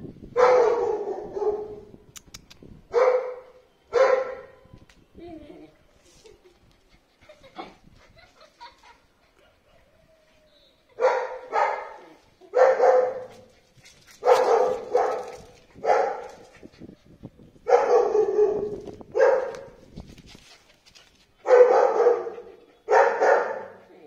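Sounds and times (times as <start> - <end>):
dog barking: 0.4 - 1.8, 2.9 - 4.5, 11.0 - 13.4, 14.2 - 16.2, 17.7 - 19.7, 21.5 - 23.8.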